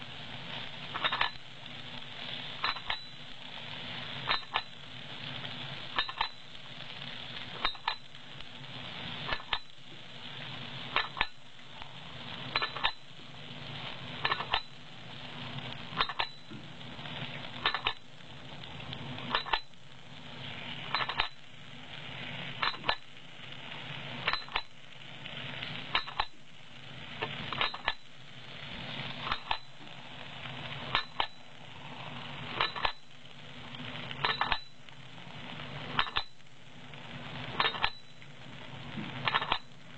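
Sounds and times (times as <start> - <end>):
steady hiss: 0.0 - 39.9
machine metal clinks: 1.0 - 1.4, 2.6 - 3.2, 6.0 - 6.4, 16.0 - 16.5, 19.3 - 19.7, 20.9 - 21.4, 24.3 - 24.7, 32.6 - 33.0.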